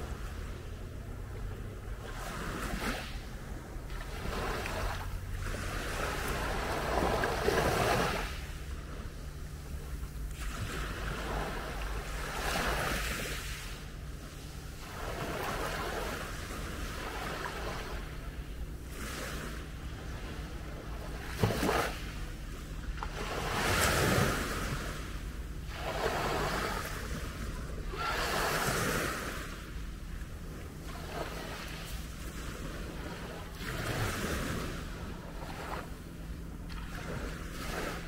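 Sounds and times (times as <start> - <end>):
low steady rumble: 0.0 - 38.0
waves washing on gravel beach: 4.0 - 8.5, 23.1 - 29.9.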